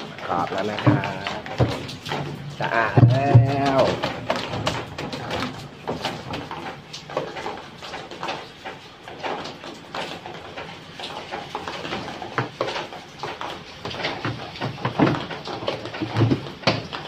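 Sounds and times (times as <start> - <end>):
plastic parts knocking and scraping: 0.0 - 17.0.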